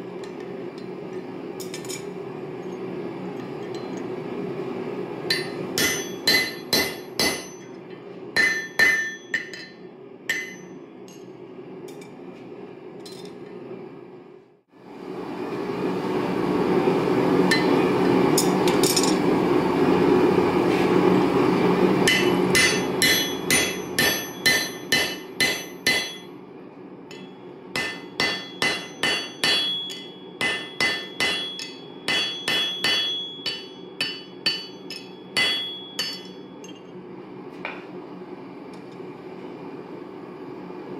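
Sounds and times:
hammer striking punch on anvil: 0:05.3 - 0:07.7, 0:08.4 - 0:10.7, 0:22.1 - 0:26.3, 0:27.1 - 0:36.4.

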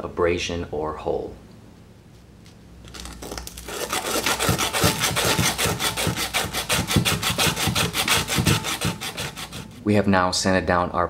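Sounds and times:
emery cloth sanding a pipe: 0:03.7 - 0:09.8.

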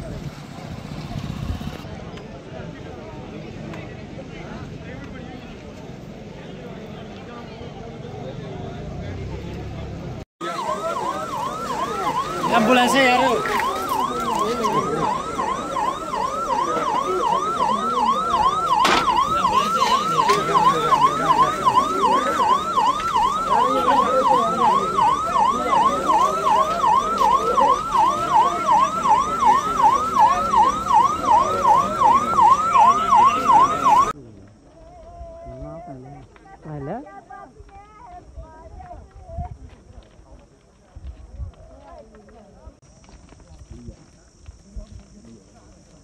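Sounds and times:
crowd voices: 0:00.0 - 0:46.0
siren sweeping up and down: 0:10.4 - 0:34.2.

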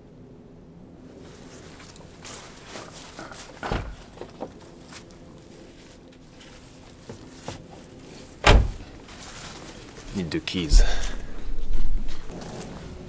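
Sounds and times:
footsteps: 0:01.2 - 0:13.0
car door shutting: 0:03.6 - 0:04.0, 0:08.4 - 0:08.9.

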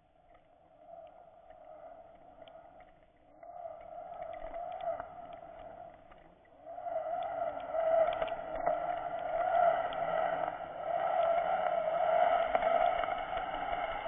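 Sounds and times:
faint clicks: 0:00.0 - 0:14.0.

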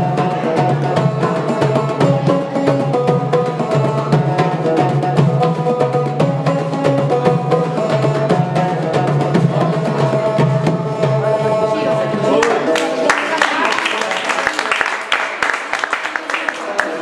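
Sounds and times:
banjo melody: 0:00.0 - 0:13.1
hand drums beating: 0:00.0 - 0:13.9.

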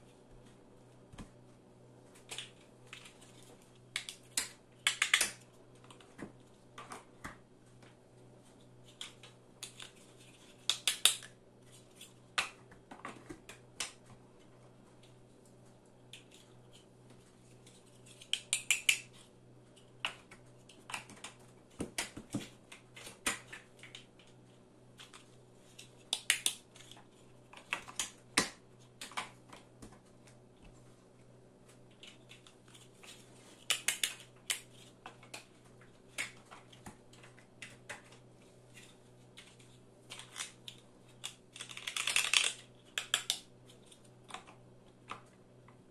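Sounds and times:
plastic blocks clicking together: 0:04.0 - 0:06.0, 0:10.6 - 0:11.3, 0:18.1 - 0:19.1, 0:25.0 - 0:27.0, 0:32.0 - 0:35.5, 0:39.4 - 0:44.5.

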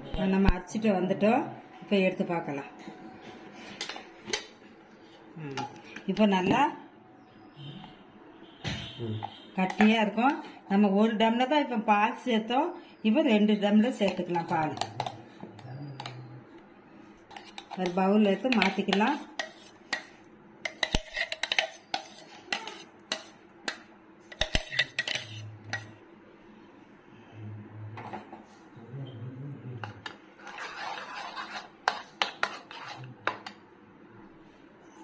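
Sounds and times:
spoon scraping thick mixture: 0:09.2 - 0:10.5, 0:13.5 - 0:16.2, 0:17.1 - 0:26.0, 0:29.8 - 0:33.6.

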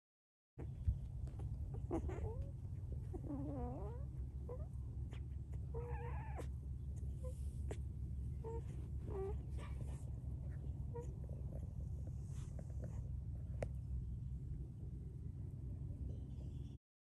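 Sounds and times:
puppies whining and squeaking: 0:00.6 - 0:13.0.

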